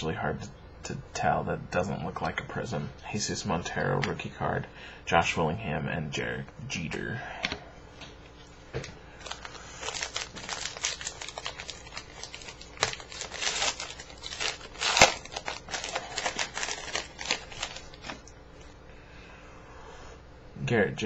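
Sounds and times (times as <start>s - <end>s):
foil wrapper crinkling and tearing: 9.2s - 18.3s.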